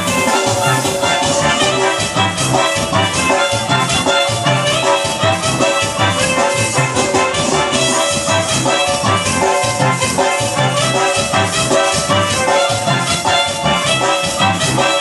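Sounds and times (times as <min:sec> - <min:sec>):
loud dance music: 0:00.0 - 0:02.2.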